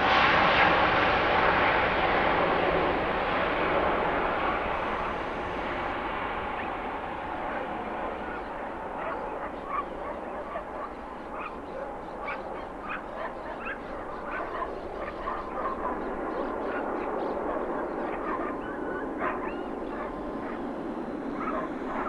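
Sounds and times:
distant jet aircraft rumble: 0:00.0 - 0:22.0
birds honking: 0:06.4 - 0:22.0.

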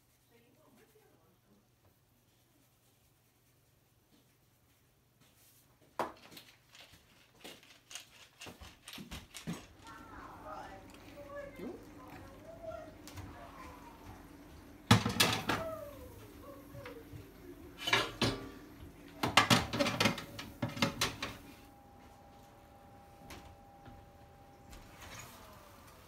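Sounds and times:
faint steady hum: 0:09.3 - 0:26.0
oven door shutting: 0:14.8 - 0:16.0, 0:17.6 - 0:21.6
glass dish clattering on oven rack: 0:17.8 - 0:18.6.

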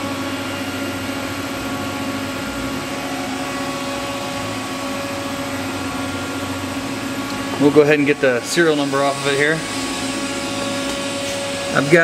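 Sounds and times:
machine cooling fans humming: 0:00.0 - 0:12.0.

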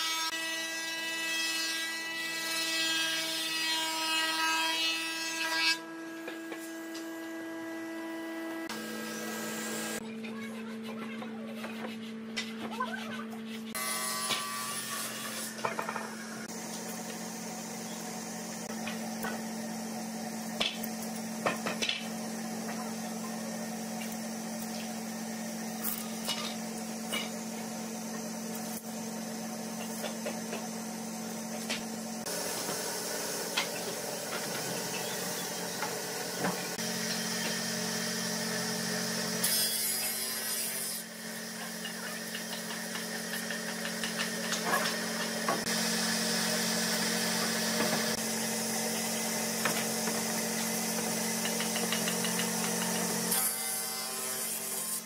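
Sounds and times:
steady machine hum: 0:05.9 - 0:39.4.

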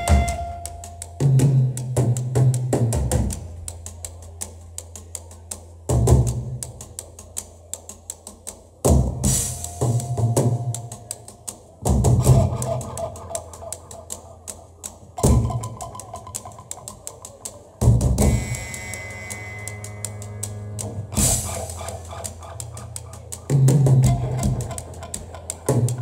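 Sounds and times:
punk band playing: 0:00.0 - 0:01.8, 0:17.8 - 0:22.9
fast ticking drum beat: 0:00.0 - 0:26.0.

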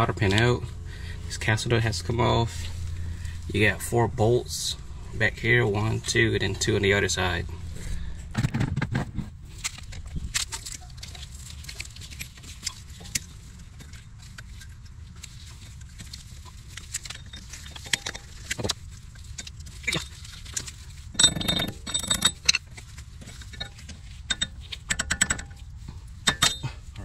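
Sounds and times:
metallic rattling and jangling: 0:16.6 - 0:27.0
small metal clicks: 0:16.7 - 0:26.7.

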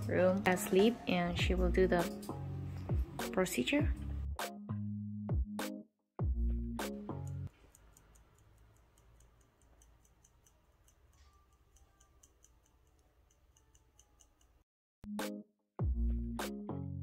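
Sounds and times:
faint even ticking: 0:07.0 - 0:14.6.

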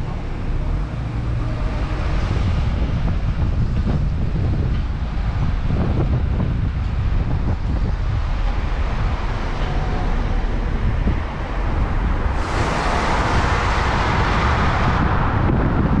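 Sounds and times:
engine and road rumble: 0:00.0 - 0:16.0
wind noise on microphone: 0:00.0 - 0:16.0.

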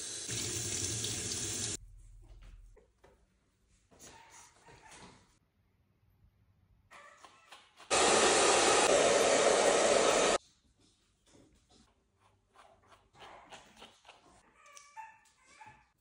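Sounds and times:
hair dryer blowing: 0:07.9 - 0:10.4.

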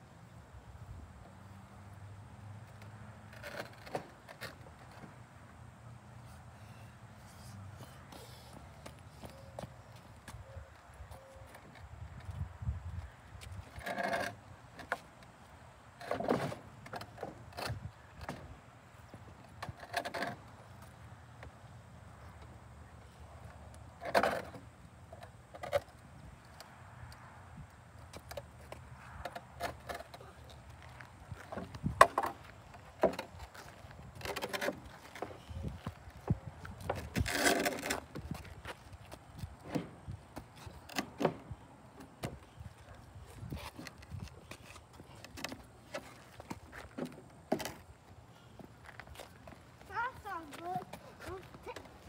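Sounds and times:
wooden ramp scraping: 0:16.0 - 0:18.5, 0:31.4 - 0:38.7.

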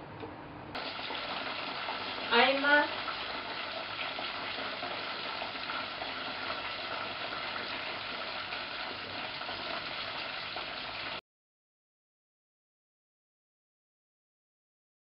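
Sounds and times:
food deep-frying in hot oil: 0:00.8 - 0:11.2.

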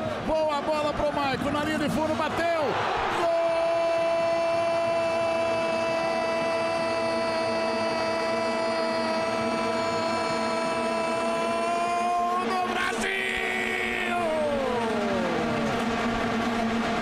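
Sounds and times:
vuvuzelas droning: 0:03.3 - 0:15.4.

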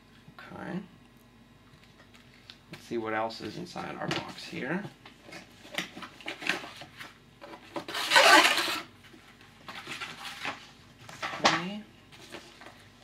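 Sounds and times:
cardboard tray scraping: 0:07.8 - 0:08.9.

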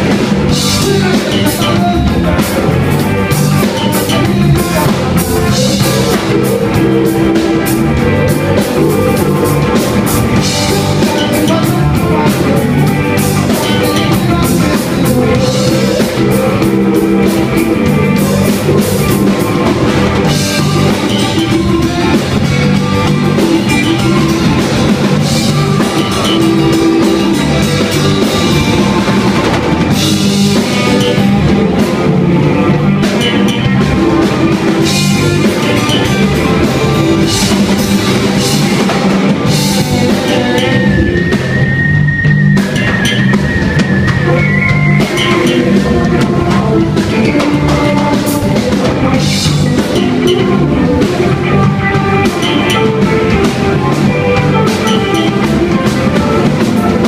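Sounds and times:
drum kit: 0:00.0 - 0:57.0
electric bass: 0:00.0 - 0:57.0
electric guitar: 0:00.0 - 0:57.0
keyboard: 0:00.0 - 0:57.0.

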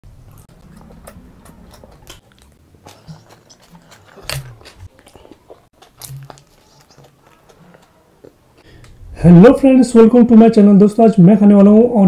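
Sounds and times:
person chewing crunchy food: 0:00.1 - 0:09.0.

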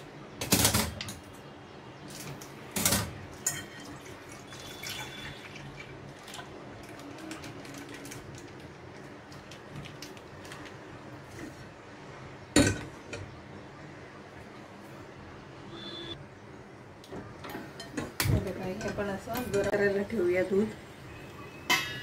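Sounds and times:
milk pouring into saucepan: 0:03.7 - 0:06.9.

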